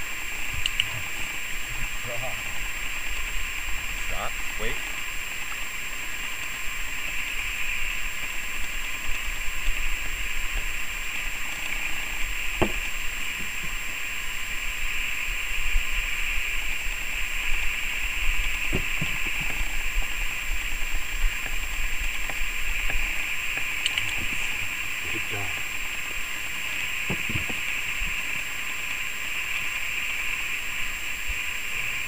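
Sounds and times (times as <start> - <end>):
outdoor background hiss: 0.0 - 32.0
soft thumps: 18.7 - 19.6, 27.1 - 27.6.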